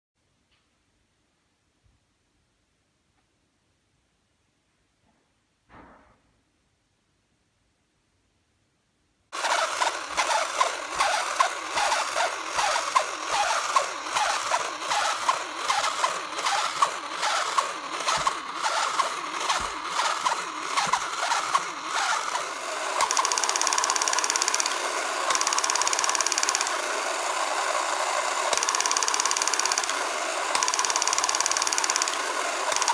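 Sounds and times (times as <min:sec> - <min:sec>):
mechanical buzz: 0:09.3 - 0:32.9
toy motor clattering: 0:09.3 - 0:32.9.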